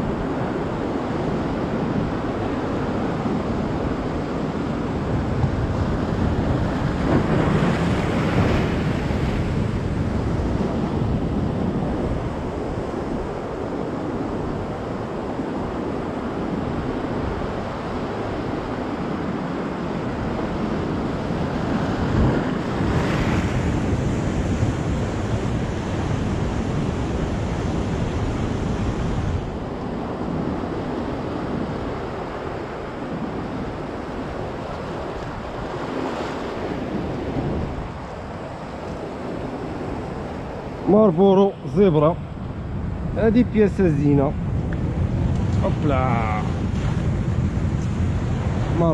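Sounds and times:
sea surf breaking over rocks: 0.0s - 48.9s.

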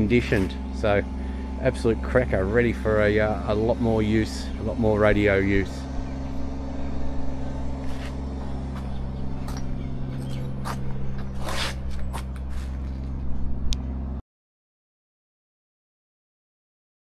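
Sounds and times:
low machine hum: 0.0s - 14.2s
footsteps on concrete: 7.7s - 13.4s
light scrapes on concrete: 7.8s - 8.9s, 9.5s - 13.1s.

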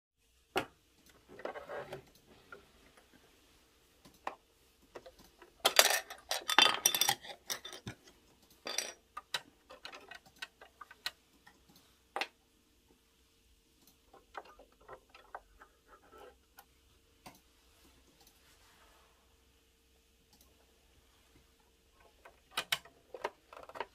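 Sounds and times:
plastic clicks and rattles: 4.0s - 12.4s, 22.2s - 23.9s.

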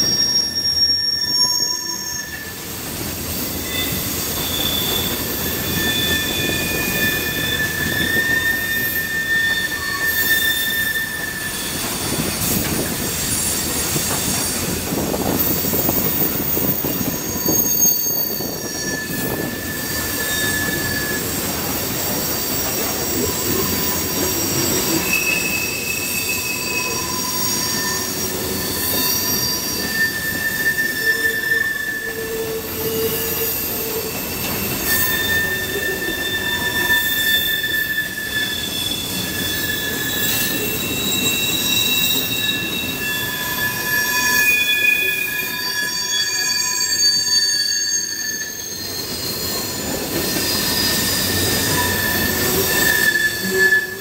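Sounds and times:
train wheels rumbling on rails: 0.0s - 54.0s
train wheels squealing: 0.0s - 54.0s.

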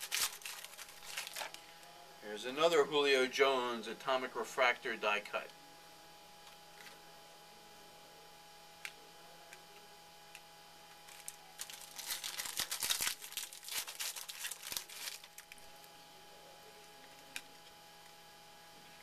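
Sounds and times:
wrapper crinkling and tearing: 0.0s - 1.7s, 11.0s - 15.8s.

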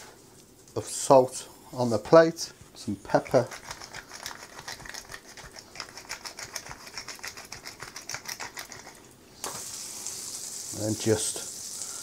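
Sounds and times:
pepper mill grinding: 3.0s - 9.6s
oil and butter sizzling in pan: 9.4s - 12.0s.

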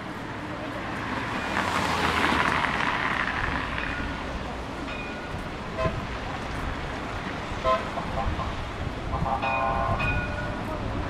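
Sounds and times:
car passing with tyre hiss: 0.0s - 4.8s
traffic hum: 0.0s - 11.0s.

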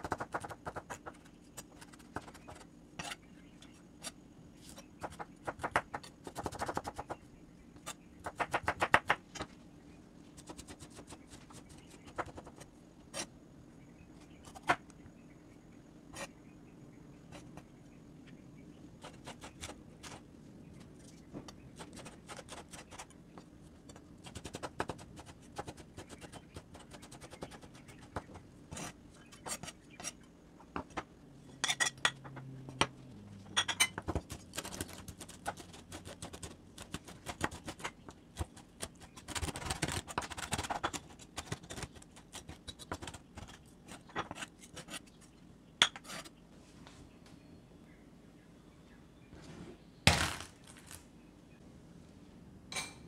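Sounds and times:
knife scraping cutting board: 3.0s - 3.2s, 28.7s - 30.2s, 43.9s - 45.1s, 45.8s - 46.3s.

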